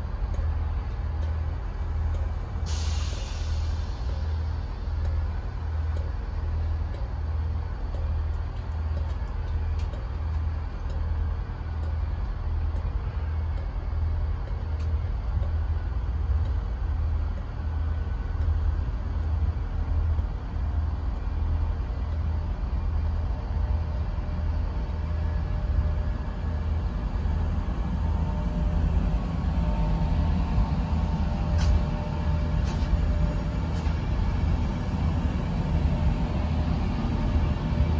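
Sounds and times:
electric train rumble: 0:00.0 - 0:37.9
faint regular clicking: 0:00.3 - 0:23.3.

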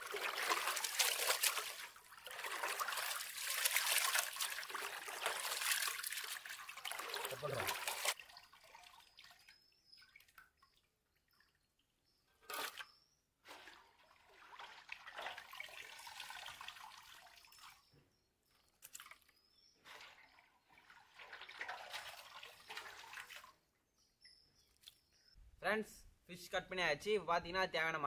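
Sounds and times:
water dripping and splashing: 0:00.0 - 0:11.9, 0:13.5 - 0:17.8, 0:18.7 - 0:23.6.

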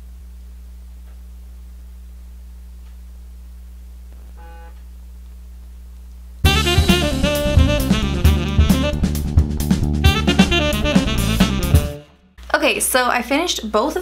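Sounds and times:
steady low hum: 0:00.0 - 0:12.8
faint tone: 0:04.3 - 0:04.8
saxophone and drums music: 0:06.4 - 0:12.2.

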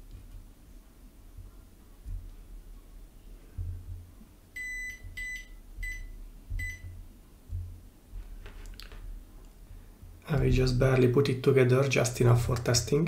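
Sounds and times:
multimeter beeping: 0:04.6 - 0:07.0
low bumps of probes handled: 0:06.5 - 0:09.2.

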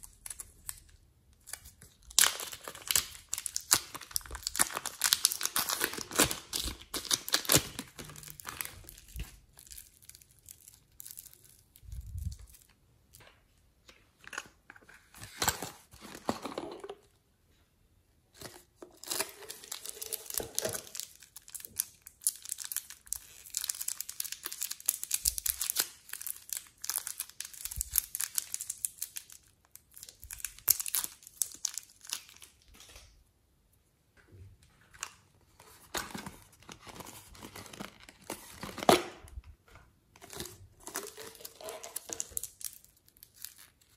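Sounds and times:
plastic bag crinkling: 0:02.1 - 0:12.7.

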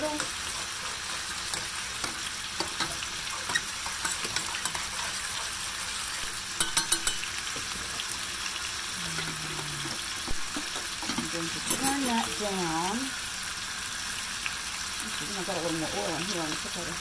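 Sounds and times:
boiling water: 0:00.0 - 0:13.1
chicken sizzling in hot oil: 0:00.0 - 0:17.0
metal spoon clinking on pot: 0:06.6 - 0:07.4, 0:11.1 - 0:12.1.

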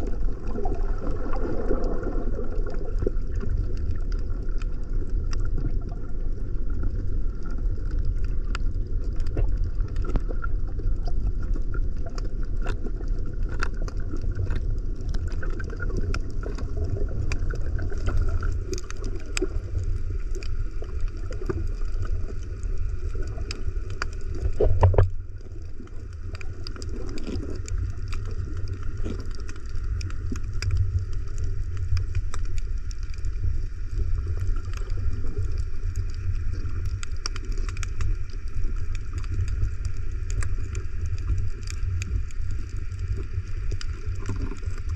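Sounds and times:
underwater clicks and crackles: 0:00.0 - 0:44.9
underwater low rumble: 0:00.0 - 0:44.9.

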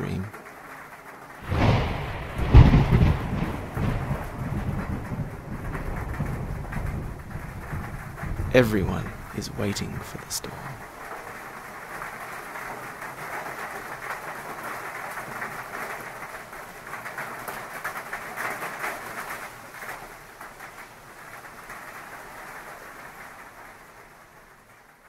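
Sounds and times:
heavy rain hissing: 0:00.0 - 0:24.4.

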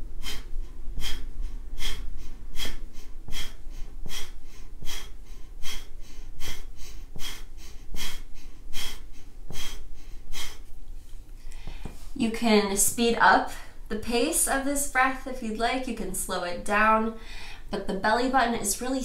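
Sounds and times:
woman's forceful nasal exhales: 0:00.2 - 0:10.7
quiet inhales: 0:11.4 - 0:12.2, 0:17.2 - 0:17.7.

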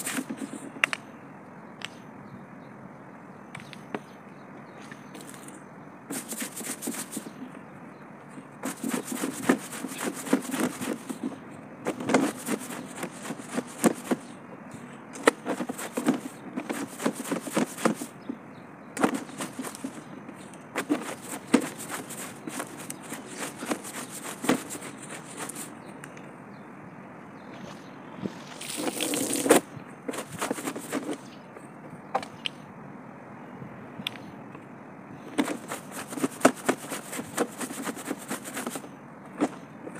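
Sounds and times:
broom scrubbing: 0:06.1 - 0:07.3, 0:08.6 - 0:14.3, 0:15.3 - 0:18.1, 0:19.0 - 0:20.1, 0:20.8 - 0:25.7, 0:28.3 - 0:31.2, 0:35.4 - 0:38.8.

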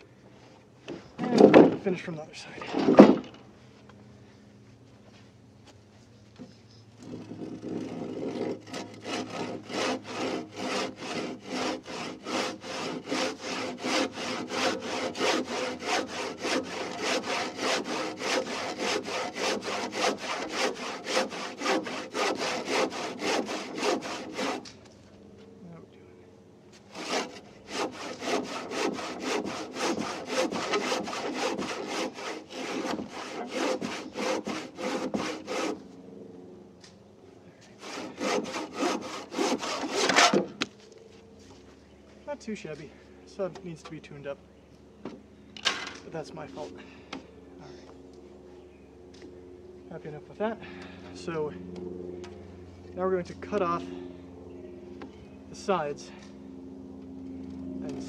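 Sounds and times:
handsaw cutting wood: 0:07.0 - 0:24.7, 0:26.9 - 0:35.8, 0:37.8 - 0:40.6.

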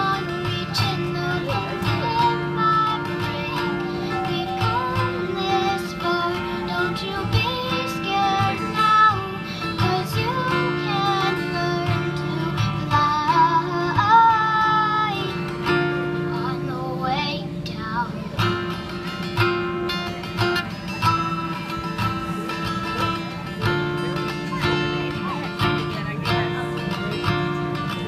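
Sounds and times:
girl singing: 0:00.0 - 0:19.4
acoustic guitar strumming: 0:00.0 - 0:28.0.

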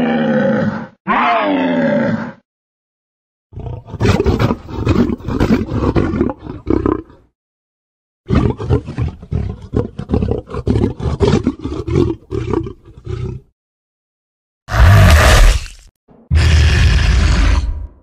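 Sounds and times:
monster roaring: 0:00.0 - 0:02.4, 0:14.7 - 0:18.0.

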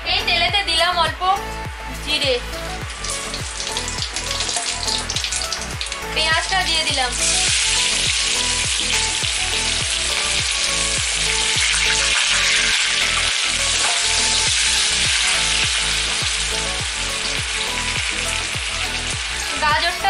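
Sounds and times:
onion sizzling in hot oil: 0:02.0 - 0:20.0.

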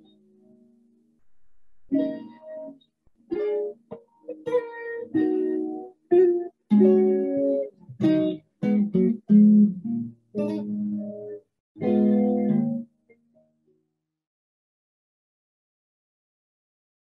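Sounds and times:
guitar plucked notes and chords: 0:01.5 - 0:13.6.

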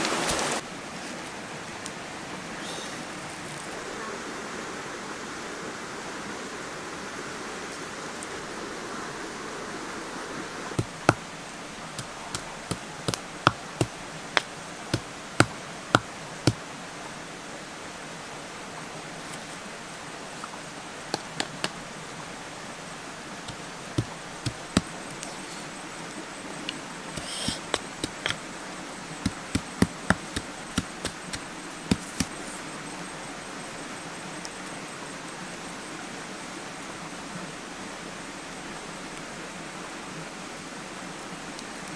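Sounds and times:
steady soft hiss: 0:00.0 - 0:41.9
pestle pounding in mortar: 0:10.8 - 0:11.2, 0:27.2 - 0:28.4, 0:29.2 - 0:32.3.

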